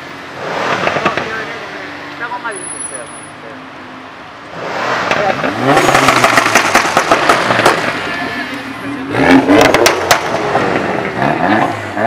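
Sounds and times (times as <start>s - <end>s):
car engine revving: 0.0s - 2.1s, 4.4s - 12.0s
exhaust crackling and popping: 4.9s - 8.2s, 9.2s - 12.0s.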